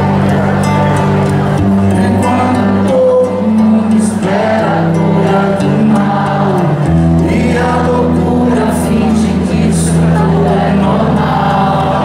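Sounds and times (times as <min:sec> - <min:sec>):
acoustic guitar: 0:00.0 - 0:12.0
man singing into microphone: 0:01.8 - 0:12.0.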